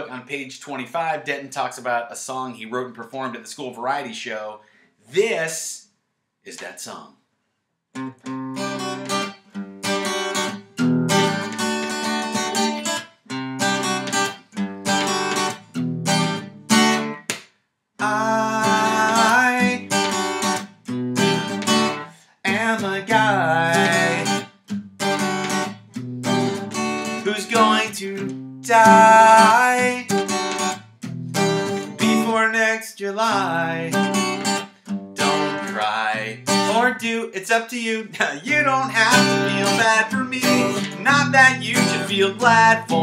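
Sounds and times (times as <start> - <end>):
acoustic guitar strumming chords: 8.0 - 17.4, 18.0 - 43.0
man singing: 18.0 - 20.0, 22.4 - 24.4, 27.2 - 30.1, 31.9 - 34.1, 35.2 - 43.0.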